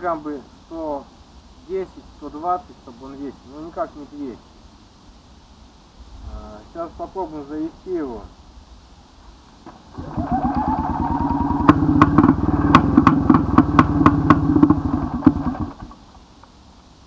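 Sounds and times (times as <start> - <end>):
motorcycle engine starting and popping: 9.7 - 16.2.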